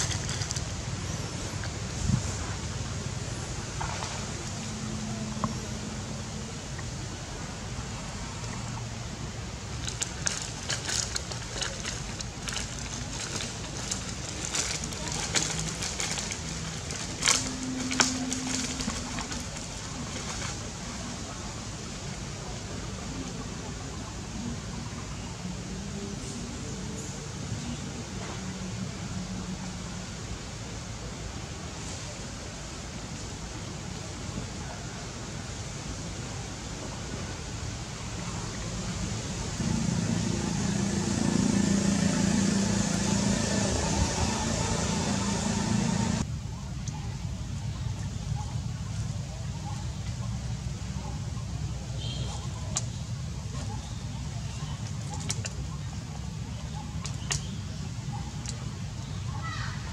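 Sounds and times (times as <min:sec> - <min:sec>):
dry leaves crackling underfoot: 0:00.0 - 0:01.6, 0:09.5 - 0:21.7, 0:39.5 - 0:46.3
steady background hiss: 0:00.0 - 0:59.9
low motor hum: 0:04.0 - 0:20.9, 0:39.6 - 0:46.3.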